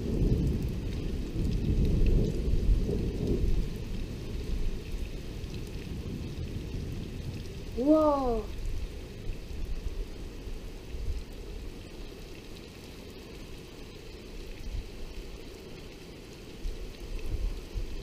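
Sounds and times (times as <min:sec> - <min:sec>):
thunder rumbling: 0:00.0 - 0:04.8
steady rain: 0:00.0 - 0:18.0.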